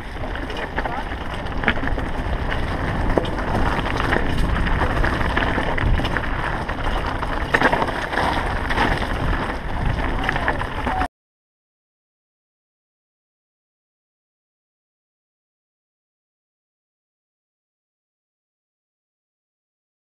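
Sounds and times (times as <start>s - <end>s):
bike rattling and knocking: 0.0s - 11.1s
bike tyres crunching over stones: 0.0s - 11.1s
wind buffeting microphone: 0.0s - 11.1s.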